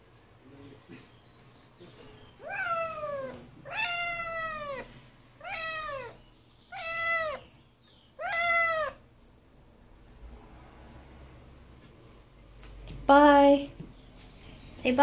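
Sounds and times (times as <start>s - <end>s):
kitten meowing: 2.4s - 7.4s, 8.2s - 9.0s.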